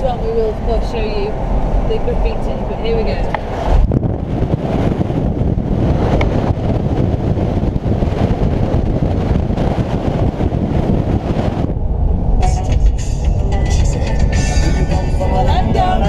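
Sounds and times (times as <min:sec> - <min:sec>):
wind rushing over camera: 0:00.0 - 0:15.9
road and engine noise: 0:00.0 - 0:16.0
music: 0:12.4 - 0:16.0.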